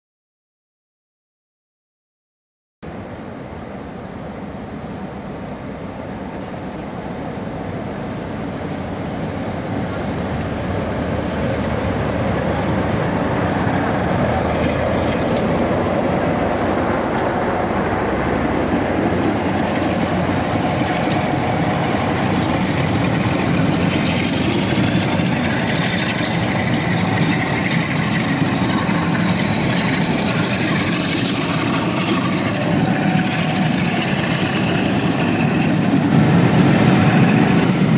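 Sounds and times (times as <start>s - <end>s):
diesel locomotive passing: 2.8s - 37.9s
wheels on rails: 8.0s - 37.9s
thin rising whine: 10.5s - 37.9s.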